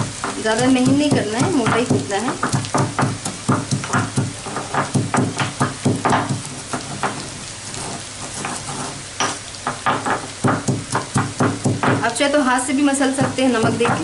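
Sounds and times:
pestle pounding in stone mortar: 0.0 - 7.2, 9.2 - 12.2, 13.0 - 14.0
pestle grinding: 0.0 - 12.1, 13.1 - 14.0.

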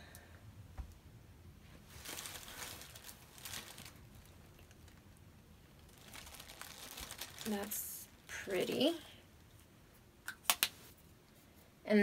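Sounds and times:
faint rustling handling noise: 1.6 - 10.1.

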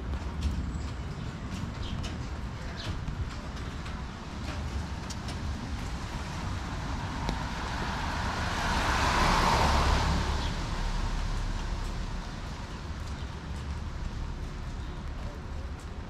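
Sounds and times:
car tyres hissing on wet street: 4.3 - 16.0.

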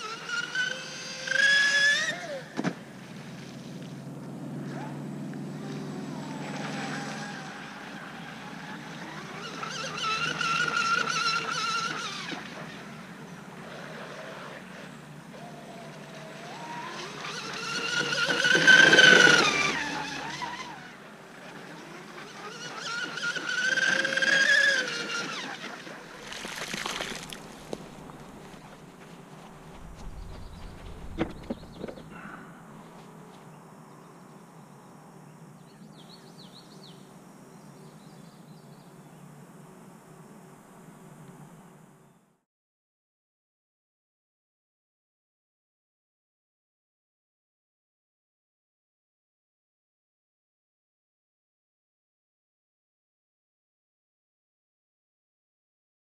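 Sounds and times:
electric motor whining: 4.2 - 28.8.

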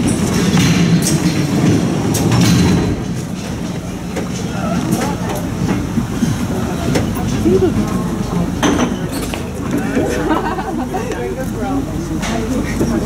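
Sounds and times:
tram wheels rumbling on rails: 0.0 - 13.0
faint voices: 3.6 - 13.0.

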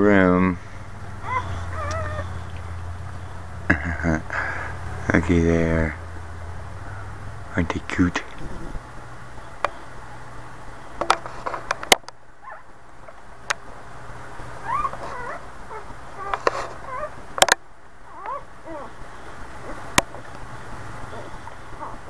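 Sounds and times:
puppies squeaking and whimpering: 1.2 - 2.6, 14.6 - 17.2, 18.1 - 19.0, 19.6 - 20.3, 21.1 - 22.0.

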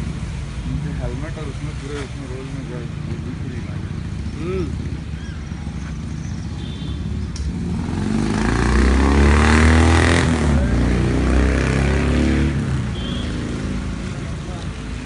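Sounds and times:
motorcycle passing by: 3.6 - 15.0.

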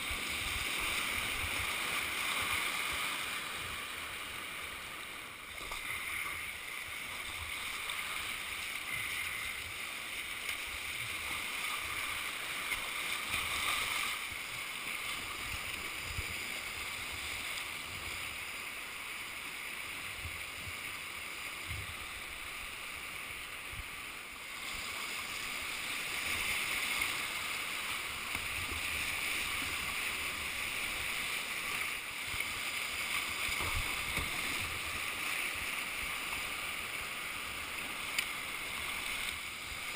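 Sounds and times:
river water rushing: 0.0 - 39.9.

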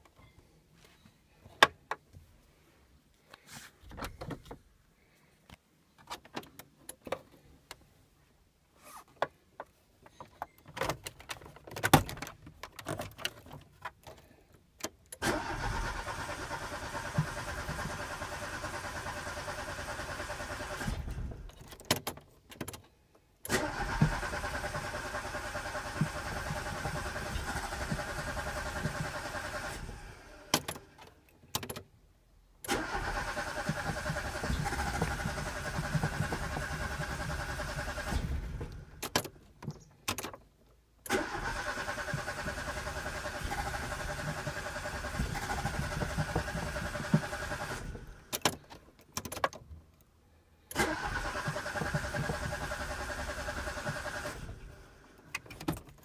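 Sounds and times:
engine cranking on starter: 15.2 - 21.5, 23.4 - 31.0, 32.6 - 39.1, 41.0 - 48.6, 50.7 - 55.2.

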